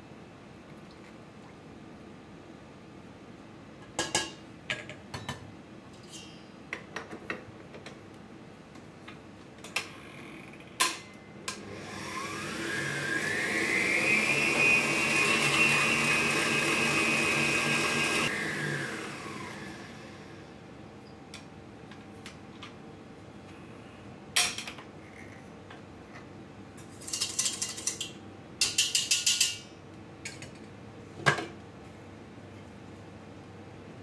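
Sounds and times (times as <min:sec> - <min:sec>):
stand mixer motor whine: 0:11.6 - 0:20.4
utensils clinking against steel bowls: 0:27.0 - 0:29.7.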